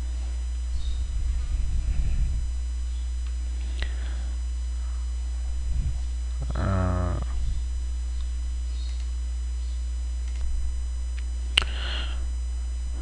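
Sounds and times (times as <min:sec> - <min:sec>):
electrical mains hum: 0:00.0 - 0:13.0
man humming briefly: 0:06.4 - 0:07.7
sharp click: 0:08.8 - 0:09.1, 0:10.2 - 0:10.5.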